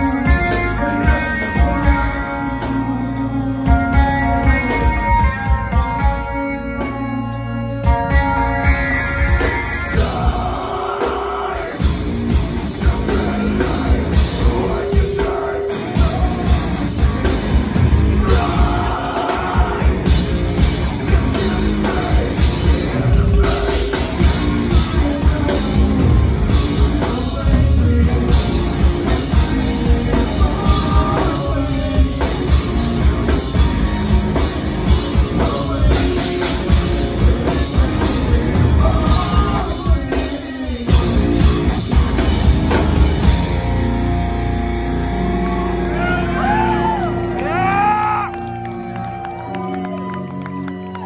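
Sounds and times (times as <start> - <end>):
man singing: 0.0 - 5.2, 9.8 - 33.7, 34.3 - 41.7
rock band playing live: 0.0 - 51.0.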